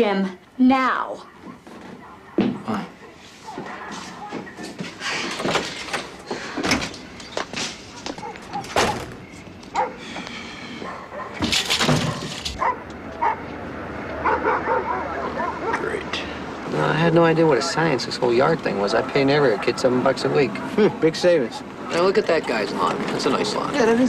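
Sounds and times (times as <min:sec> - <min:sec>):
dog barking: 0:08.1 - 0:09.1, 0:09.7 - 0:10.0, 0:10.8 - 0:11.4, 0:12.6 - 0:13.5, 0:14.2 - 0:16.0, 0:18.9 - 0:20.8.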